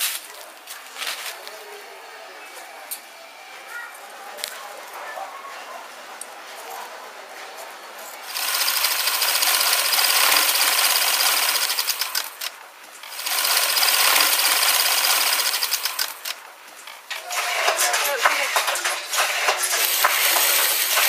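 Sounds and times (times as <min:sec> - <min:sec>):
sewing machine stitching: 0:08.3 - 0:21.0.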